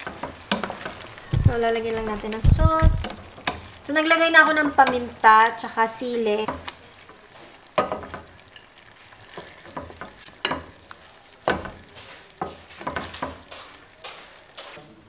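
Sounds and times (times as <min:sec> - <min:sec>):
spoon scraping and knocking pan: 0:00.0 - 0:03.8, 0:04.4 - 0:05.2, 0:06.3 - 0:14.9
faint sizzle: 0:00.0 - 0:15.0.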